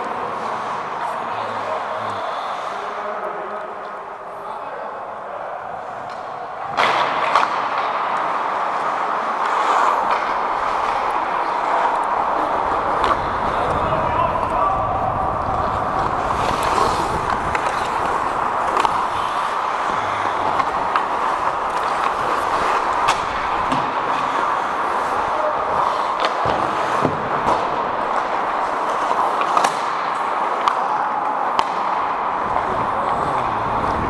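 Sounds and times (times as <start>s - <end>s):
skating and rink noise: 0.0s - 34.0s
hockey sticks and puck clacking: 5.8s - 34.0s.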